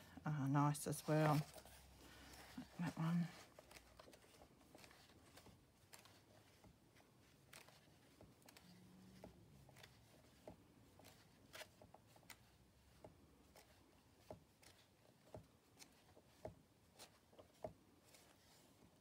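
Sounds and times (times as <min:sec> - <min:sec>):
book pages turning: 0:00.0 - 0:19.0.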